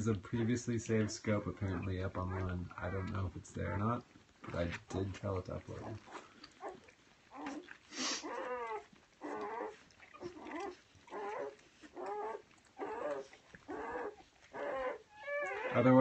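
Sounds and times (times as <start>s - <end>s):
puppies squealing: 0.4s - 4.0s, 5.6s - 16.0s.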